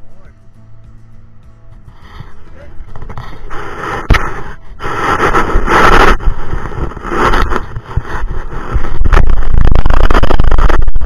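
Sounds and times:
camera scraping on sand: 0:02.9 - 0:11.0.

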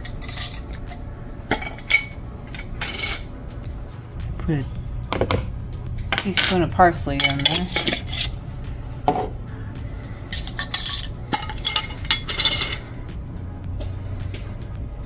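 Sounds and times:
metal utensils clinking on bowl: 0:00.0 - 0:03.3, 0:06.1 - 0:08.4, 0:10.3 - 0:12.9.

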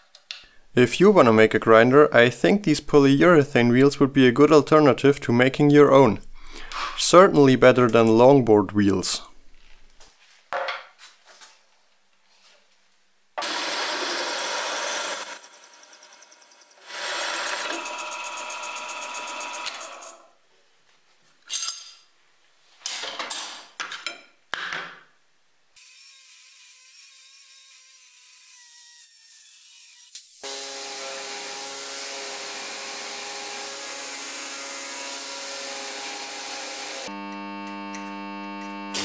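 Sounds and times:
angle grinder cutting steel rod: 0:13.4 - 0:20.2, 0:25.8 - 0:39.0
drill press boring into steel: 0:13.4 - 0:20.2.

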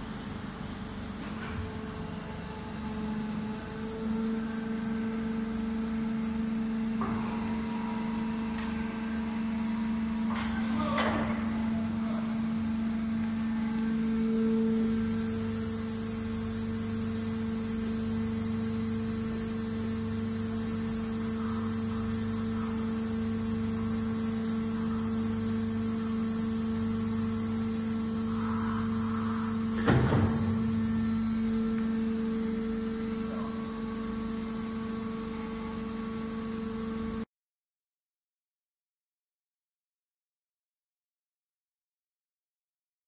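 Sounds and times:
machine electrical hum with hiss: 0:00.0 - 0:37.3
machine clunk: 0:07.0 - 0:08.9, 0:10.2 - 0:11.7, 0:29.8 - 0:30.6.

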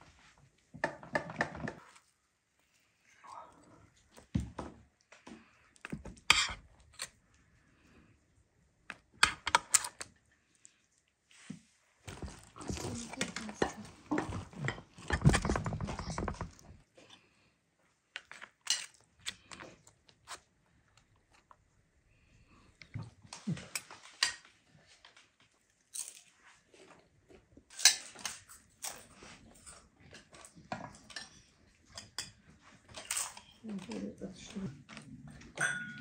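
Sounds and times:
cutlery clinking on plates: 0:35.6 - 0:36.0.

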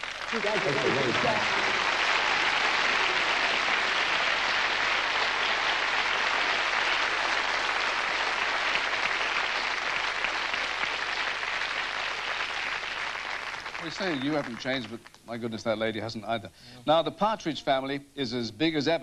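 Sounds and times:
audience applauding: 0:00.0 - 0:15.2.

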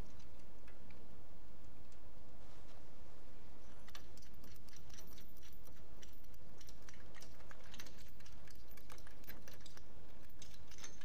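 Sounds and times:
small metal parts clicking: 0:03.8 - 0:11.0.

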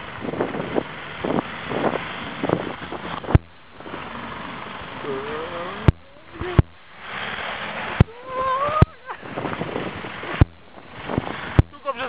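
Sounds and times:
diesel engine pulling uphill: 0:00.0 - 0:11.8
sharp knocks: 0:03.3 - 0:03.6, 0:10.4 - 0:10.8, 0:11.6 - 0:11.8.

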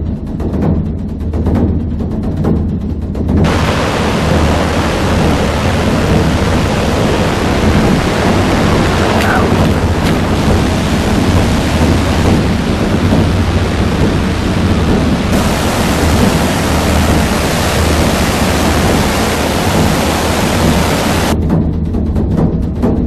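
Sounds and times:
waterfall crashing over boulders: 0:03.4 - 0:21.4.

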